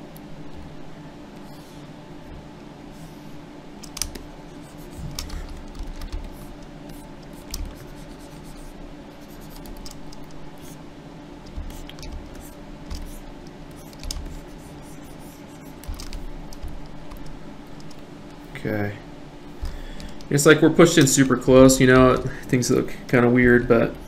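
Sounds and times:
low electrical hum: 0.0 - 24.0
computer keyboard clicks: 3.8 - 4.2, 4.9 - 7.8, 9.4 - 10.4, 11.5 - 13.2, 13.8 - 14.5, 15.7 - 18.0.

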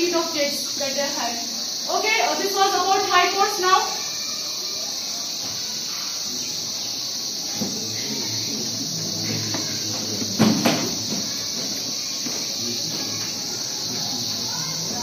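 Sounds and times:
high-pitched hiss: 0.0 - 15.0.

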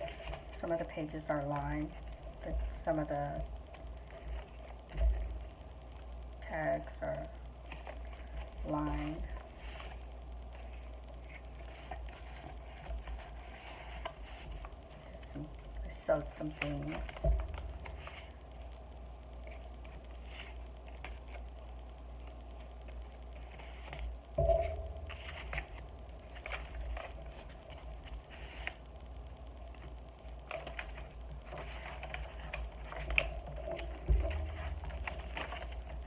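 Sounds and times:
paper rustling: 0.0 - 0.7, 3.7 - 5.6, 7.7 - 15.3, 16.3 - 18.4, 19.4 - 21.5, 23.4 - 28.8, 29.7 - 36.0
steady low hum: 0.0 - 36.0
loud thumps: 24.4 - 25.7.

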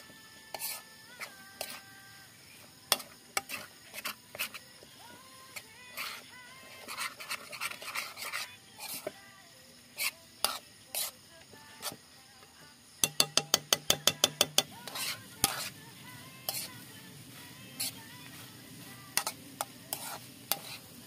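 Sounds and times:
faint sizzle: 0.0 - 21.0
metal spatula scraping a wok: 0.5 - 1.9, 2.8 - 4.7, 5.5 - 9.2, 10.0 - 11.2, 11.8 - 12.0, 14.0 - 15.8, 16.4 - 16.8, 17.6 - 21.0.

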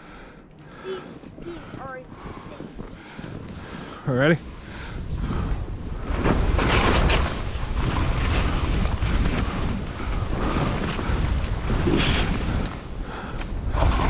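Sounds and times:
wind buffeting microphone: 0.1 - 14.0
skis scraping over snow: 0.9 - 12.6.

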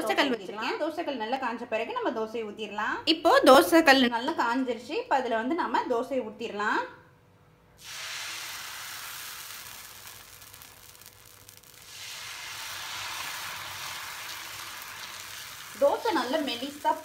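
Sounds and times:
batter sizzling on hot pan: 7.8 - 17.0.

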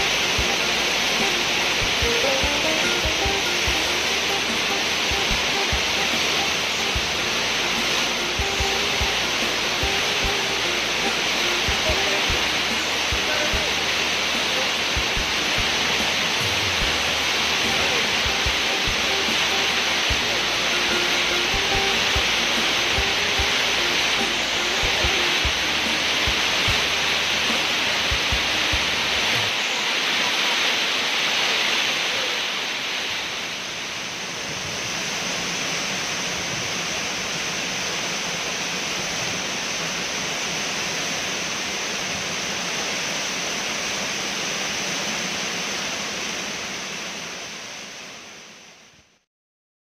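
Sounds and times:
waterfall pouring onto rock: 0.0 - 34.0.

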